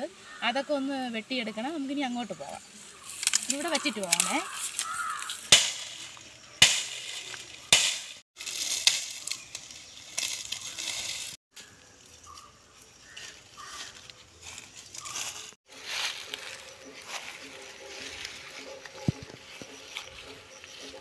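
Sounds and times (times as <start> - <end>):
fronds rustling: 2.1 - 21.0
dry sticks crackling and snapping: 3.0 - 11.4, 13.1 - 21.0
sharp cracks: 3.2 - 9.3.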